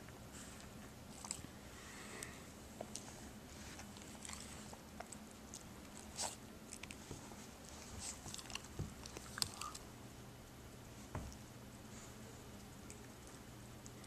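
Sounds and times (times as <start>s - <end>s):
puppy crunching food: 1.1s - 1.5s, 2.8s - 9.9s.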